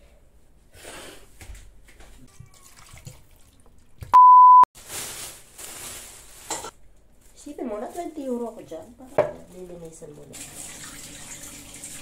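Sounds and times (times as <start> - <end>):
test tone beep: 4.2 - 4.7.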